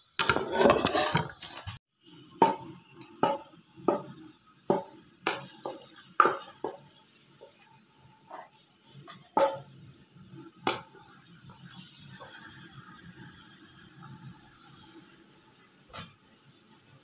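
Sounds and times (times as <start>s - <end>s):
wooden spoon scraping a pot: 0.0s - 1.8s
onions sizzling in oil: 0.0s - 17.0s.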